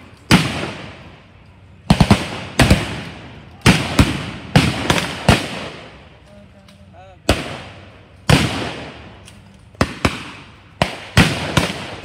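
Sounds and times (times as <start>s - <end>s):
blank gunshots echoing: 0.0s - 1.1s, 1.8s - 6.0s, 7.2s - 9.2s, 9.8s - 12.0s.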